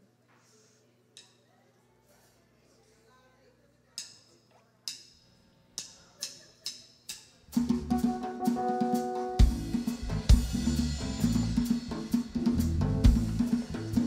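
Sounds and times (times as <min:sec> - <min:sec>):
live band playing: 0:07.5 - 0:14.0
bass drum hits: 0:09.4 - 0:14.0.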